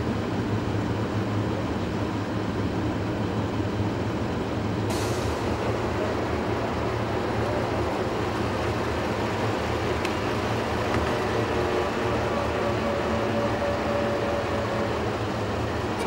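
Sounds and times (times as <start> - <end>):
diesel engine idling: 4.0 - 16.0.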